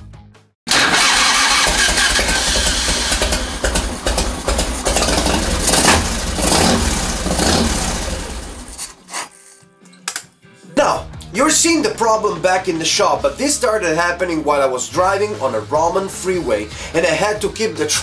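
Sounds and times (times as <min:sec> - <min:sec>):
engine sputtering unevenly: 0:00.7 - 0:08.8.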